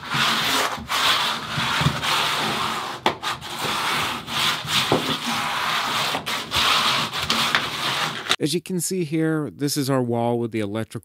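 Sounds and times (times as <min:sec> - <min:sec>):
scraping on plastic membrane: 0:00.0 - 0:08.4.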